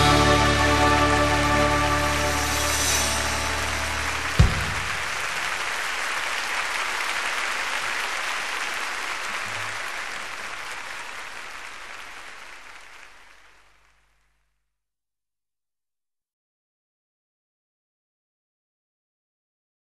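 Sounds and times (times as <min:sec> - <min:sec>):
audience applauding: 0:00.0 - 0:14.2.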